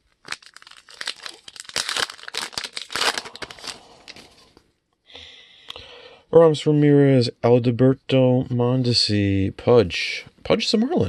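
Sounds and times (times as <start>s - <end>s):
plastic wrapper crinkling and tearing: 0.0s - 4.6s.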